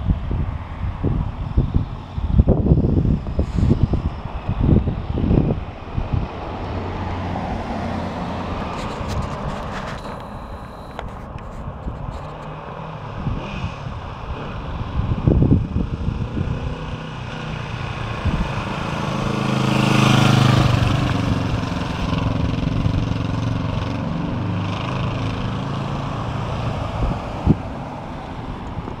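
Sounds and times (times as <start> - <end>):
wind buffeting microphone: 0.0 - 29.0
motorcycle passing by: 1.0 - 10.9, 12.5 - 29.0.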